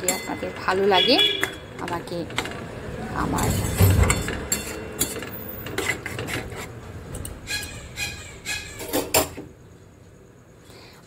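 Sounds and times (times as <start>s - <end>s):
utensil scraping a metal pot: 3.4s - 6.8s.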